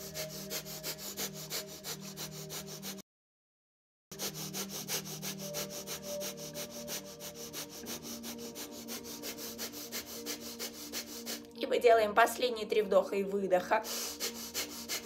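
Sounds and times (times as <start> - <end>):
fast forceful rhythmic breathing: 0.0 - 3.0, 4.1 - 11.6, 13.8 - 15.0.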